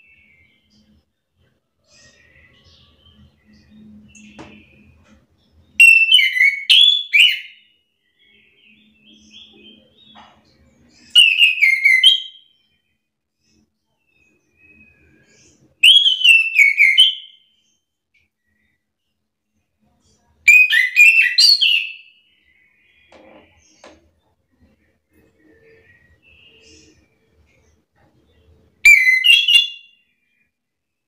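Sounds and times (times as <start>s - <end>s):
thrush singing whistled notes: 1.9s - 17.7s, 20.5s - 23.9s, 24.5s - 27.6s, 28.7s - 30.6s.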